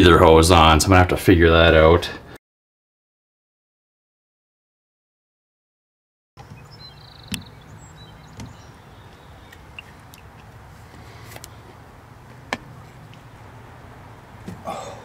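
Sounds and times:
hose fitting knocking on plastic: 0:07.3 - 0:07.5.

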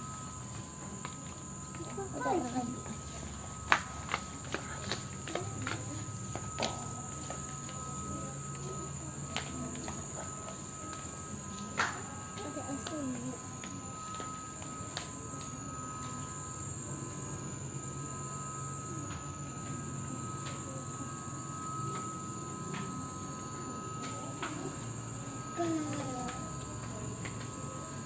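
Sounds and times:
high constant whine: 0:00.0 - 0:28.0.

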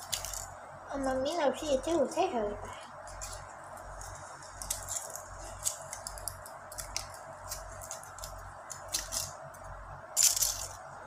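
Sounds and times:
wrapper crinkling: 0:03.0 - 0:09.4.

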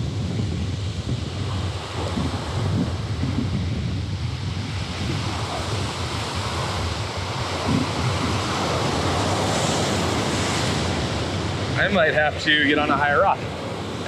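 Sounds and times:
ocean surf breaking: 0:00.0 - 0:14.0
wind on microphone: 0:00.0 - 0:14.0.

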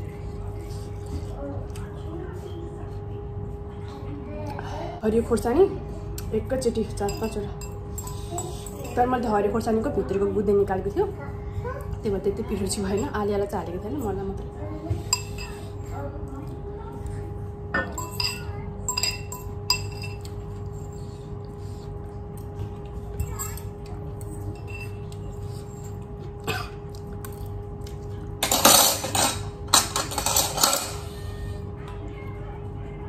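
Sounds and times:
steady hum: 0:00.0 - 0:33.0
cutlery clinking on steel bowl: 0:07.0 - 0:09.0, 0:17.8 - 0:20.4, 0:24.5 - 0:25.2, 0:28.4 - 0:31.1.

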